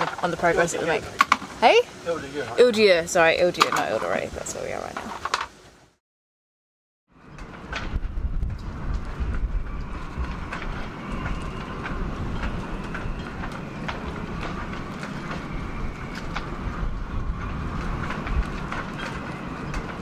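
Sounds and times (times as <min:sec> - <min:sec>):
low wind rumble: 0:07.1 - 0:20.0
rigging clinking against masts: 0:17.3 - 0:20.0.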